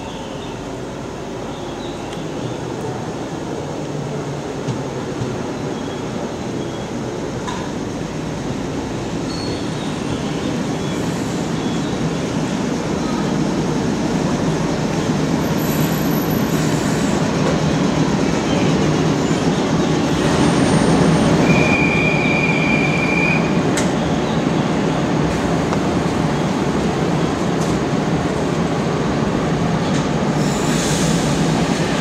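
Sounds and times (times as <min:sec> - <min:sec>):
high brake squeal: 0:09.2 - 0:10.0, 0:20.6 - 0:23.6.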